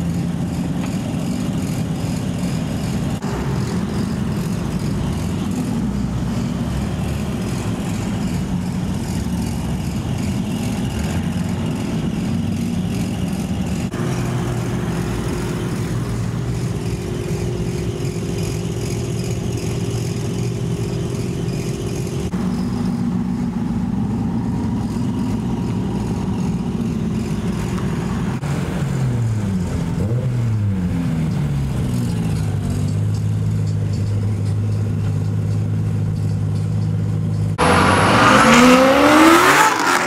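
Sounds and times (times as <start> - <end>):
sports car engines running: 0.0 - 40.0
engine revving: 26.4 - 33.0, 37.5 - 40.0
car accelerating hard: 37.6 - 40.0.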